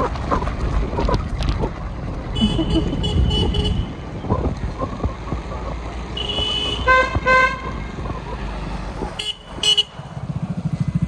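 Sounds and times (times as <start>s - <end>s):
rumble of driving on a road: 0.0s - 11.0s
vehicle horn tooting: 2.4s - 4.0s, 6.2s - 7.6s, 9.2s - 9.9s.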